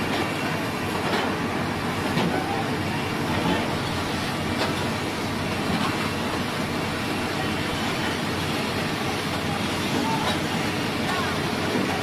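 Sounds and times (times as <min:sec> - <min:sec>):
excavators running under load: 0:00.0 - 0:12.0.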